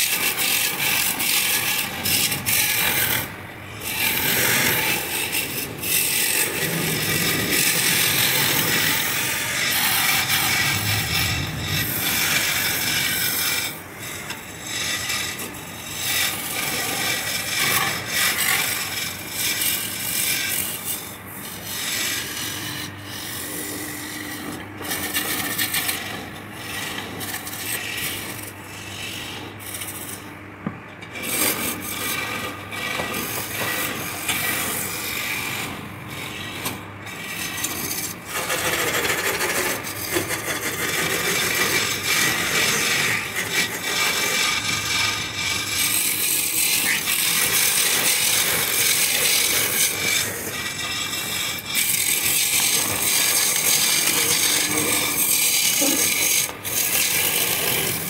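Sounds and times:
chisel scraping wood on lathe: 0:00.0 - 0:58.0
low steady hum: 0:01.8 - 0:16.6.

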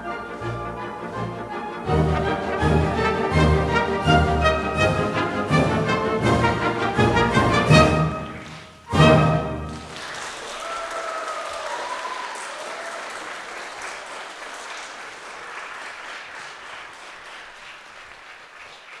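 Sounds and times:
audience applauding: 0:01.9 - 0:04.5, 0:09.4 - 0:19.0.

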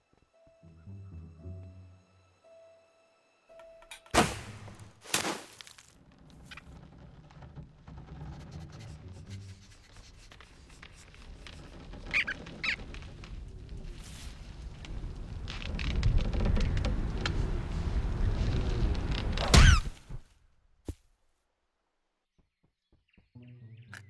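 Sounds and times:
cartoon rodent squeaks: 0:12.1 - 0:12.8.

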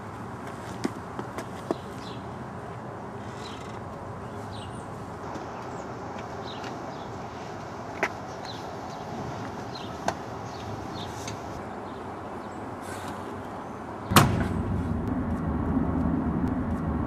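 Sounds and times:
car running drone: 0:13.6 - 0:17.0
trunk lid slamming: 0:14.1 - 0:15.2.

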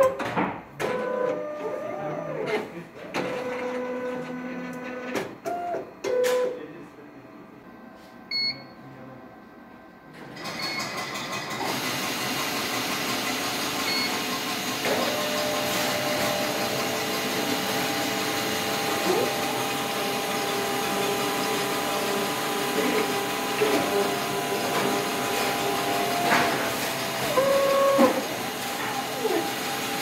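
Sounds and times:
short electronic beeps: 0:08.3 - 0:08.8
machine motors running: 0:11.4 - 0:30.0
steady machine whine: 0:12.5 - 0:30.0.

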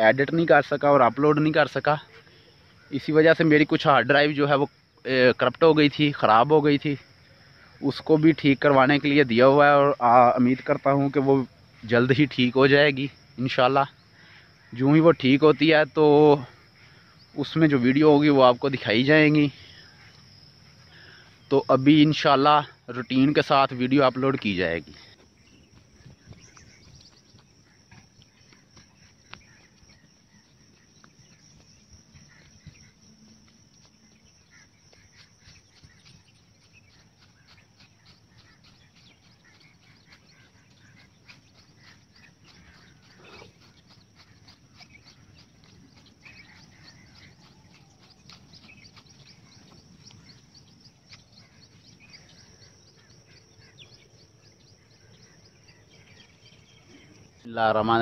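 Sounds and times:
distant bird chirps: 0:00.0 - 0:58.0
footsteps on dirt path: 0:18.1 - 0:21.6, 0:22.2 - 0:58.0.

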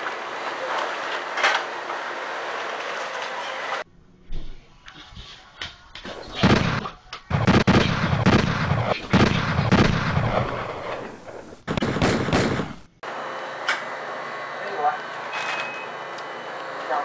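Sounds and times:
loud gunshots echoing: 0:06.3 - 0:13.0.

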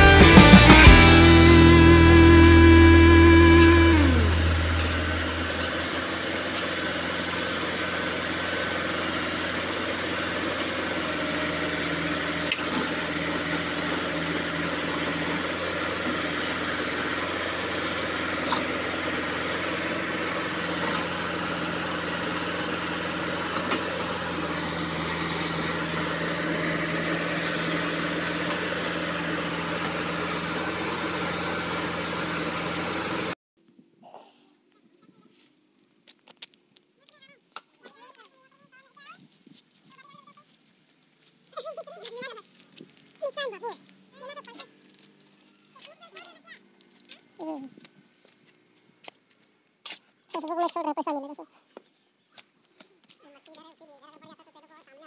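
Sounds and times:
diesel engine running: 0:00.0 - 0:33.4, 0:41.4 - 0:49.4.

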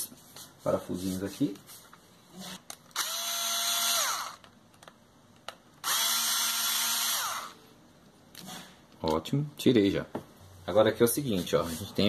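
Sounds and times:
power screwdriver motor: 0:03.0 - 0:04.4, 0:05.8 - 0:07.6.

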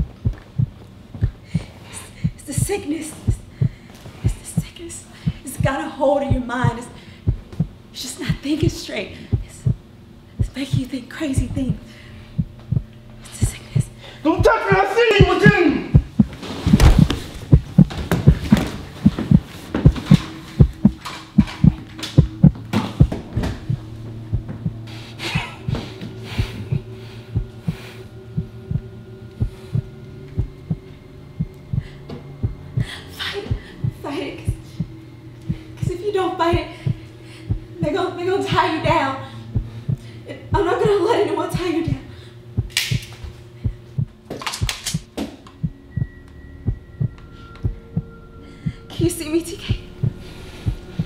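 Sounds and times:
heartbeat double thump: 0:00.0 - 0:13.9, 0:14.7 - 0:24.8, 0:28.4 - 0:32.9
low hum: 0:00.0 - 0:51.0.

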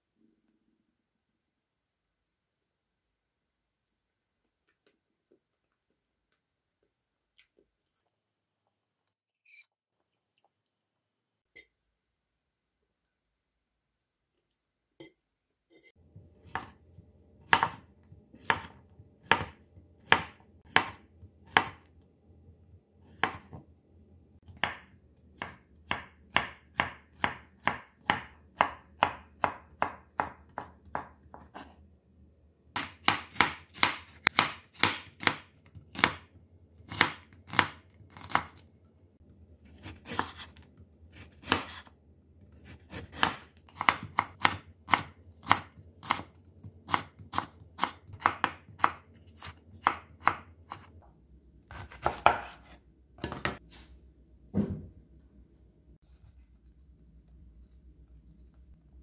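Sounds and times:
knife chopping on wooden board: 0:16.2 - 0:16.8, 0:17.4 - 0:21.8, 0:23.1 - 0:23.6, 0:24.5 - 0:31.7, 0:32.8 - 0:36.3, 0:36.9 - 0:38.6, 0:39.7 - 0:41.9, 0:42.6 - 0:50.9, 0:51.7 - 0:53.6.

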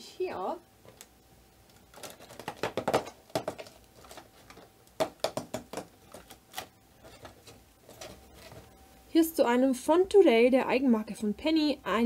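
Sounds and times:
cardboard crackling and tapping: 0:00.8 - 0:08.8.

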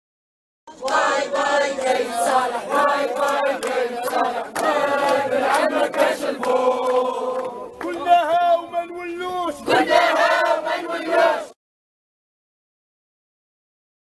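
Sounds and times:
crowd chanting in unison: 0:00.7 - 0:08.2, 0:09.4 - 0:11.6.

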